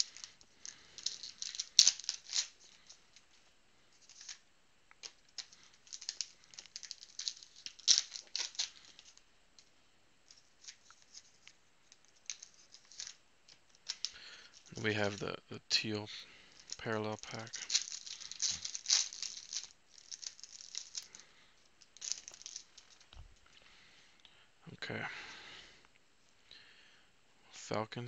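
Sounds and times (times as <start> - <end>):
cards rustling: 0.0 - 4.4, 5.0 - 9.7, 10.3 - 15.3, 16.3 - 23.5
wrapper crinkling: 0.0 - 9.7, 10.3 - 15.2, 16.4 - 23.6.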